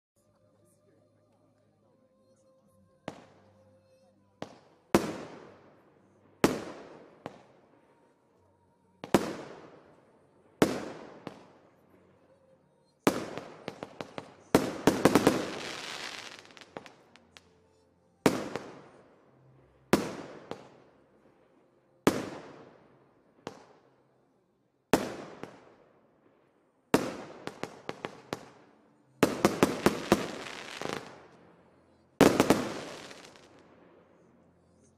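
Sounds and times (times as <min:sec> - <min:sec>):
firework crackling: 0:10.6 - 0:17.6, 0:27.0 - 0:31.4, 0:32.2 - 0:34.9
firework bangs with echo: 0:13.1 - 0:17.0, 0:29.2 - 0:31.4, 0:32.2 - 0:33.6.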